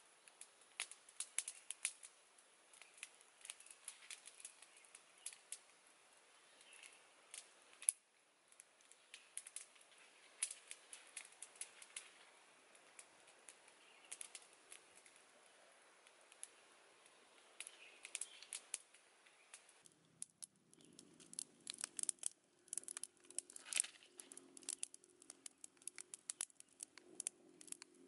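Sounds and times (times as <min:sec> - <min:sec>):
wood fire crackling: 0:00.0 - 0:28.0.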